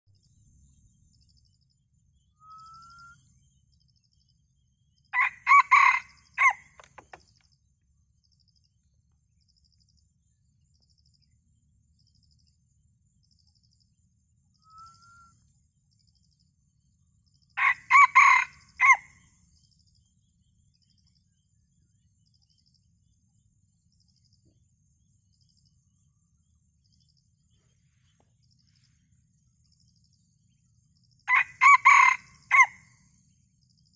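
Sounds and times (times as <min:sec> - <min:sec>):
rooster crowing: 0:05.2 - 0:07.1, 0:17.6 - 0:19.1, 0:31.3 - 0:32.9.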